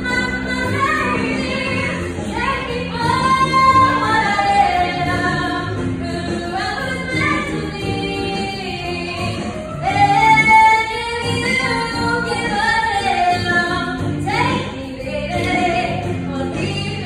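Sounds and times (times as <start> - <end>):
girls singing a duet: 0.0 - 17.0
musical accompaniment: 0.0 - 17.0.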